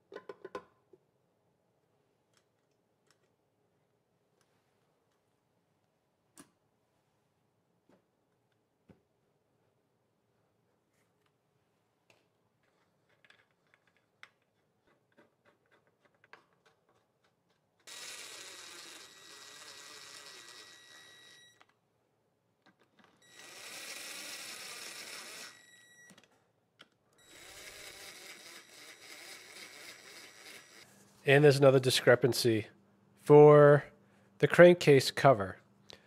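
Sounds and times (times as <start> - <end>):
cordless drill motor whining: 17.9 - 21.6, 23.2 - 26.2, 27.2 - 30.9.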